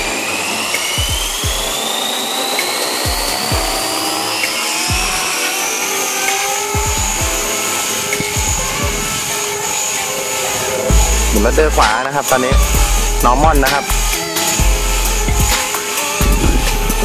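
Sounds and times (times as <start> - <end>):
rc helicopter motor and rotor whine: 0.0 - 17.0
low thumps: 6.5 - 17.0.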